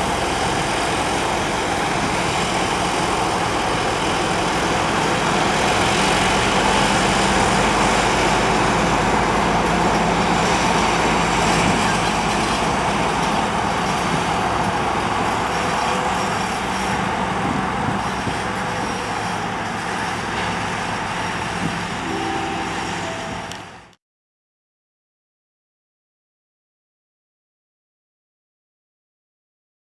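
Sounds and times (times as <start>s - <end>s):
diesel locomotive engines running: 0.0s - 24.0s.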